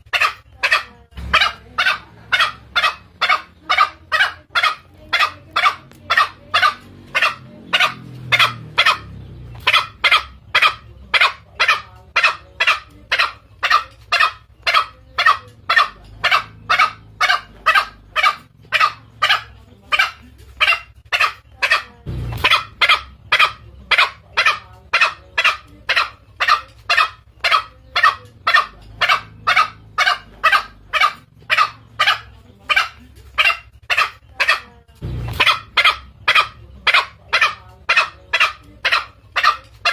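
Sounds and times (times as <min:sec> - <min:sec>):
junglefowl calls: 0:00.0 - 0:39.9.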